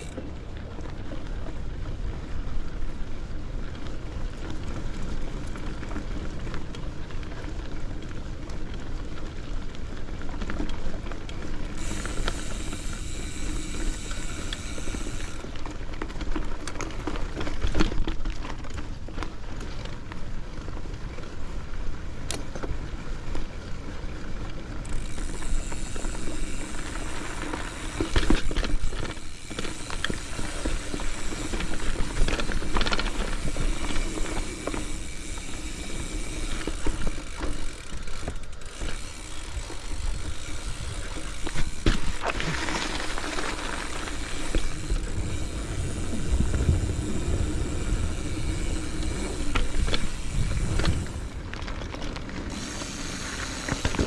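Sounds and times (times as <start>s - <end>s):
bike rattling: 0.0s - 54.0s
bike tyres crunching on dirt: 0.0s - 54.0s
bike clattering over bumps: 24.8s - 54.0s
wind on microphone: 44.5s - 51.5s.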